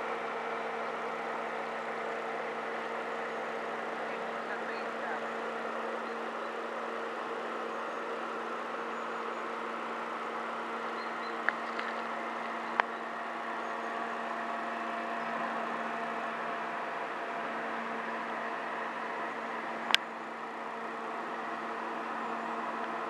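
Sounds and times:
river flowing: 0:00.0 - 0:23.0.

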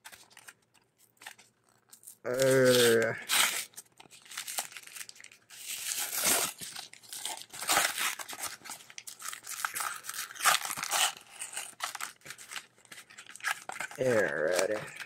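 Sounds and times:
plastic packaging crinkling: 0:00.0 - 0:15.0
cardboard ripping: 0:02.3 - 0:12.6.

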